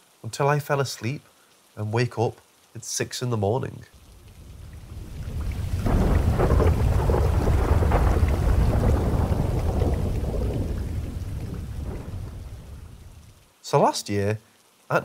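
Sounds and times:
steady rain: 0.0 - 15.0
rolling thunder: 4.2 - 13.3.

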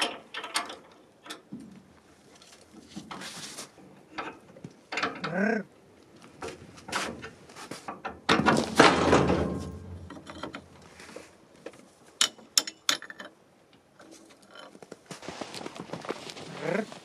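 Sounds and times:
metal trailer hitch clanking: 8.0 - 10.7.

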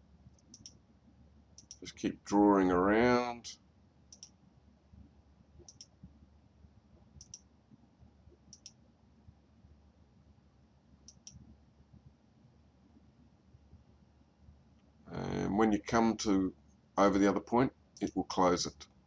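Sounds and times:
computer mouse clicks: 0.3 - 0.8, 1.6 - 1.8, 4.1 - 4.4, 5.6 - 6.0, 7.2 - 7.5, 8.5 - 8.8, 11.0 - 11.4.

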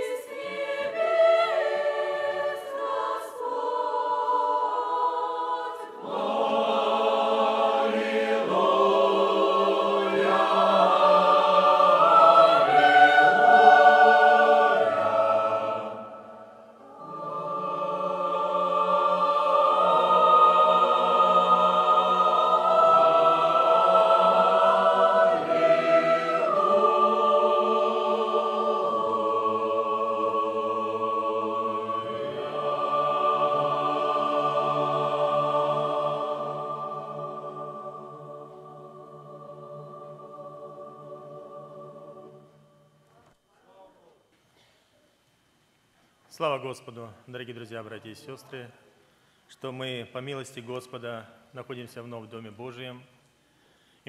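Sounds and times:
choir singing: 0.0 - 43.0.

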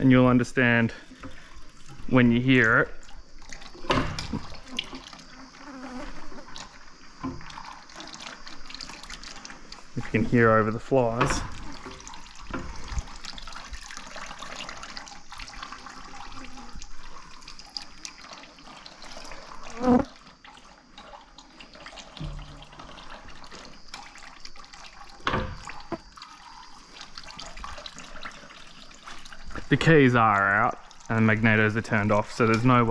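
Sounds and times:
oil trickling into bucket: 0.0 - 32.9
flies buzzing: 3.8 - 8.8, 19.5 - 20.2.

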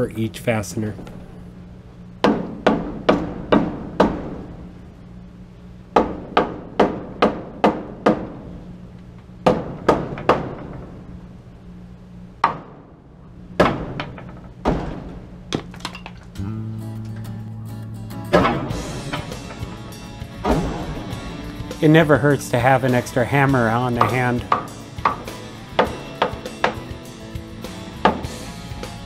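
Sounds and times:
hammer striking nails into wood: 2.2 - 4.4, 6.0 - 8.3, 9.4 - 10.7, 23.9 - 26.9.

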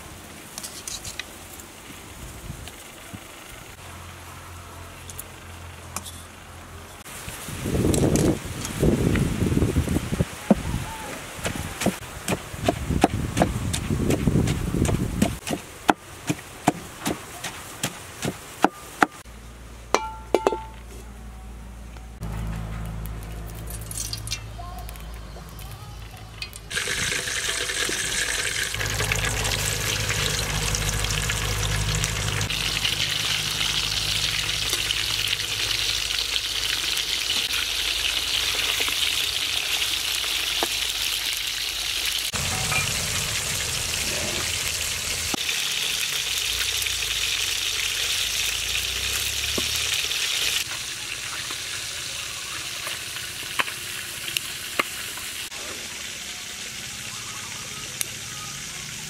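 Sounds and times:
fish sizzling in hot oil: 26.1 - 59.0.

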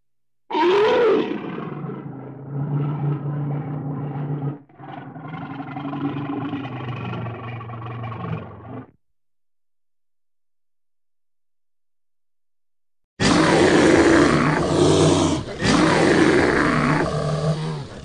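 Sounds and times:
bear growling: 0.5 - 9.0, 13.2 - 18.0.

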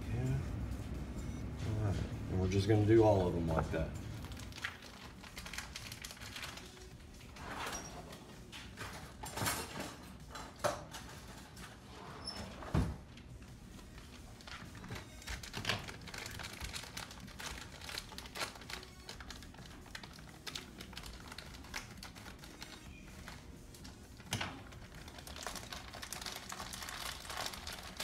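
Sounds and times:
sugar bag rustling: 14.4 - 23.4, 24.5 - 28.0.

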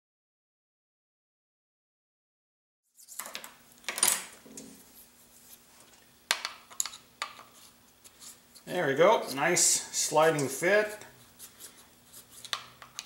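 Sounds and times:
faint steady hum: 3.0 - 13.0.

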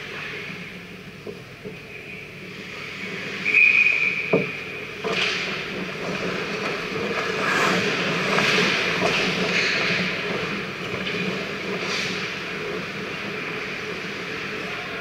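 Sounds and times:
skates scraping on ice: 5.0 - 14.6.

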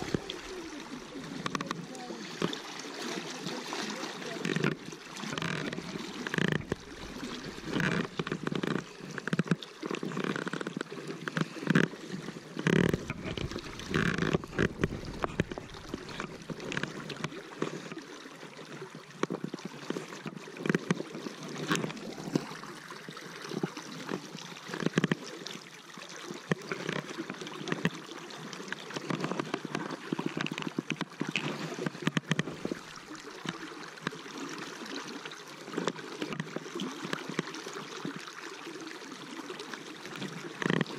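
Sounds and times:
river current rushing: 0.0 - 17.9
water splashes and knocks: 0.0 - 40.9.

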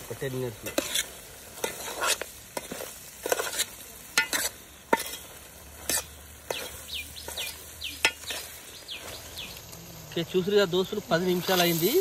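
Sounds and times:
low sizzle: 0.0 - 12.0
ladle scraping metal pot: 0.6 - 8.6.

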